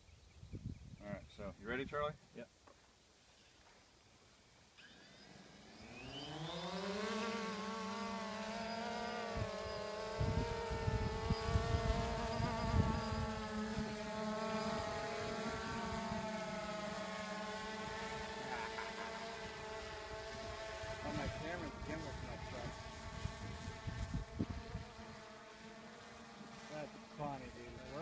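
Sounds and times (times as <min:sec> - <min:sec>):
quadcopter rotors buzzing: 0:04.4 - 0:28.0
low buffeting on microphone: 0:10.2 - 0:13.9.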